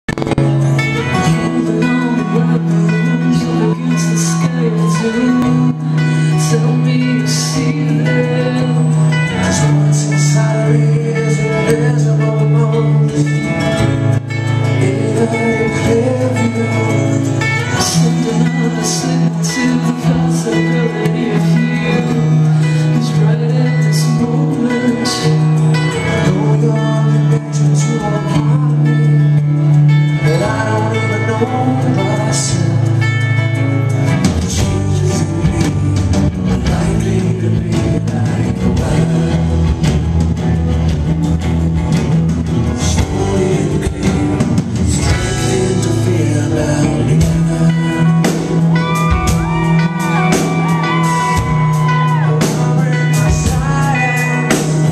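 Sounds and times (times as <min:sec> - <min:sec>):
man singing: 0:00.0 - 0:41.0, 0:41.9 - 0:54.9
bass guitar low notes: 0:00.0 - 0:54.9
electric guitar: 0:00.0 - 0:54.9
drums with cymbal hits: 0:34.0 - 0:54.9.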